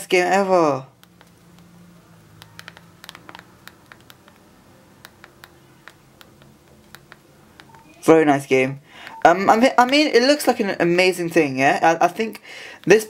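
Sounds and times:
phone keypad buttons clicking: 2.3 - 8.0, 9.0 - 10.0.

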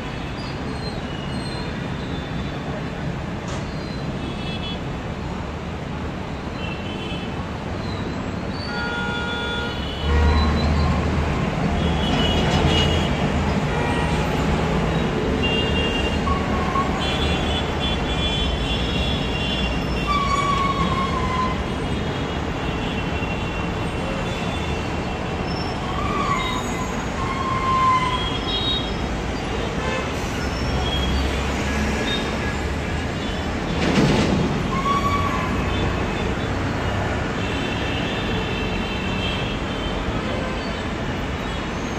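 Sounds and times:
street traffic rumble: 0.0 - 41.9.

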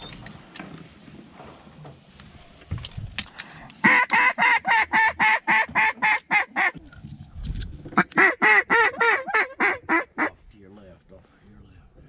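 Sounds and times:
duck call quacks: 3.8 - 6.8, 8.0 - 10.3.

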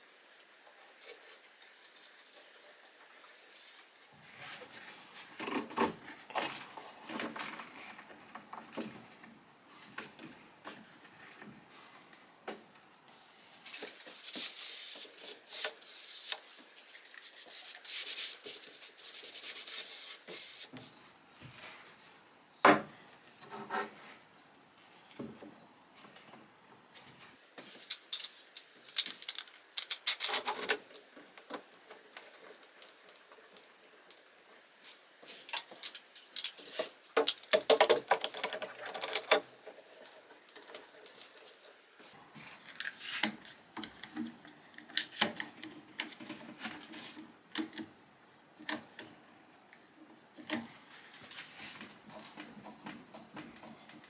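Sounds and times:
brush spreading glue: 13.2 - 21.0
wooden blocks knocking and clattering: 35.6 - 39.8.

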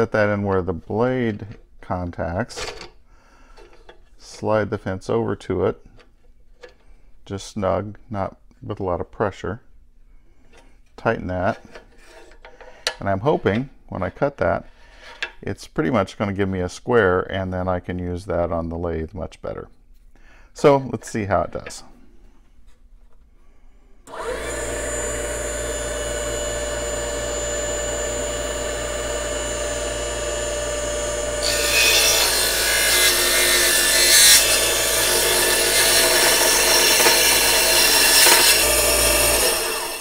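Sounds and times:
saw blade cutting wood: 24.1 - 40.0
table saw running: 24.1 - 40.0.

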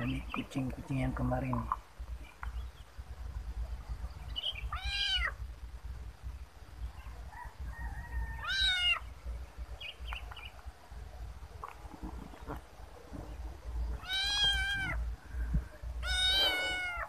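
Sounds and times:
kitten meowing: 4.7 - 5.4, 8.4 - 9.0, 14.0 - 15.0, 16.0 - 17.0.

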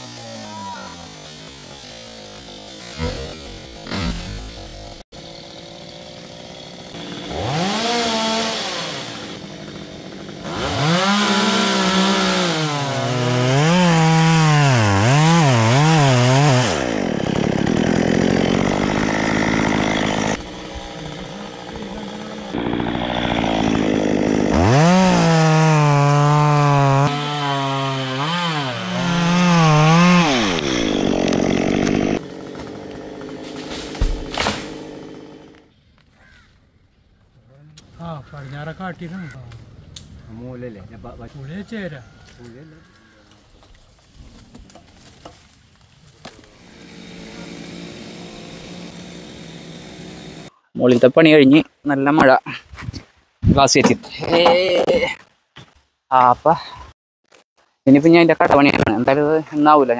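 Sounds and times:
chainsaw cutting wood: 0.0 - 35.7, 46.2 - 50.5.

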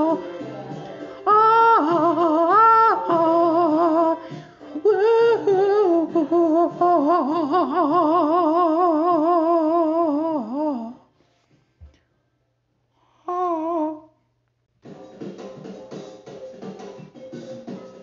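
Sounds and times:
faint musical accompaniment: 0.0 - 9.1, 14.8 - 18.0
wordless singing with vibrato: 0.0 - 11.1.

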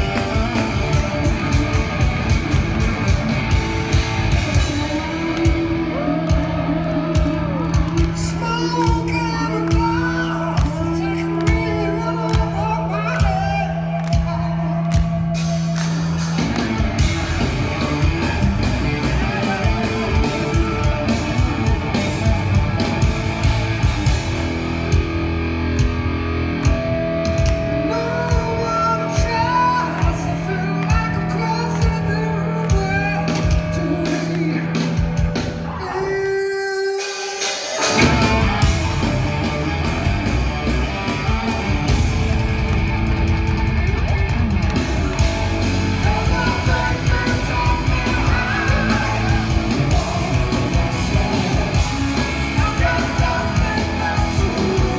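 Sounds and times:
live rock band: 0.0 - 54.9
man singing lead vocal: 4.6 - 15.3, 19.0 - 21.4, 27.7 - 38.7, 45.0 - 54.9.

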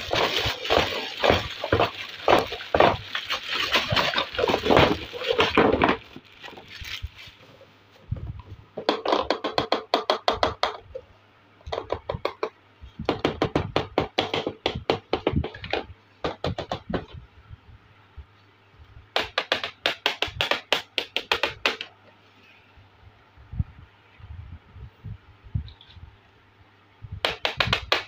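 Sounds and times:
plastic toy cups knocking together: 0.0 - 6.2
plastic bag crinkling: 0.0 - 7.6.

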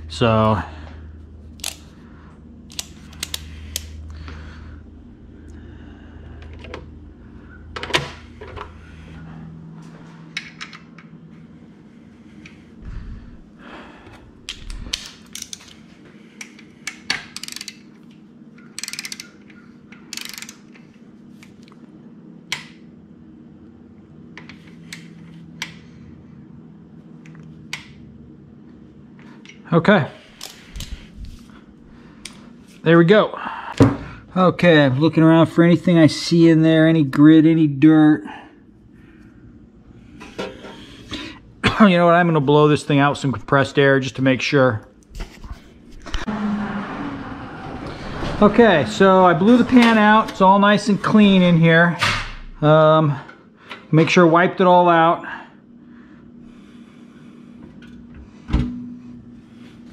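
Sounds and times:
low hum: 0.0 - 35.4, 44.8 - 52.8, 55.6 - 59.9
hand tools clicking and clattering: 14.5 - 15.8.

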